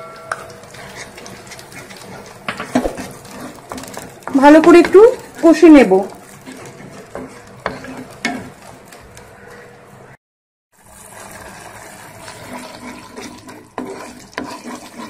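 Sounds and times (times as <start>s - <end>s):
paste sizzling in hot oil: 0.0s - 10.0s, 10.7s - 15.0s
wooden spatula scraping a pan: 0.2s - 10.2s, 10.9s - 15.0s.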